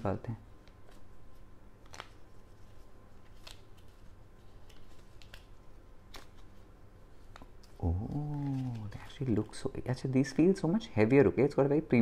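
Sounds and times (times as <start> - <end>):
plastic film peeling and crackling: 0.6 - 9.7.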